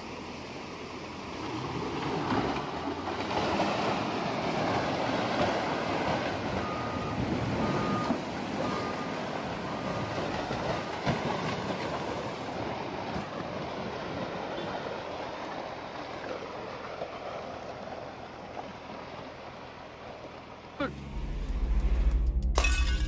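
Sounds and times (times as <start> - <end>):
reversing alarm beeping: 6.5 - 10.7.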